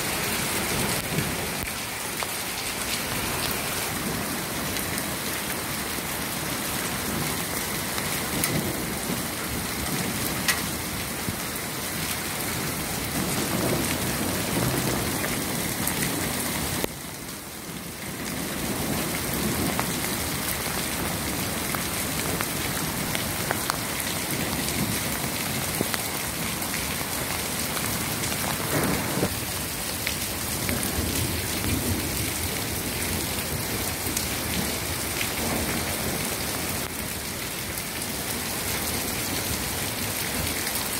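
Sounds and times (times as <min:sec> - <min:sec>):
rain hissing: 0:00.0 - 0:16.9, 0:18.7 - 0:39.0
hailstones ticking on cobblestones: 0:06.4 - 0:17.0, 0:17.6 - 0:37.8.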